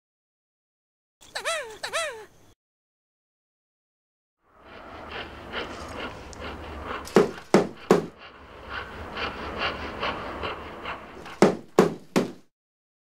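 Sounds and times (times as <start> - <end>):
heavy rhythmic panting: 4.7 - 12.5
loud sharp thumps: 7.1 - 8.2, 11.3 - 12.5.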